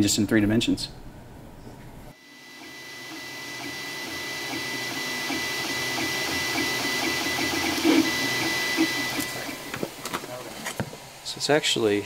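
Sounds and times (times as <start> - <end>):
steady high whine: 2.1 - 11.4
stepper motors buzzing: 2.2 - 10.4.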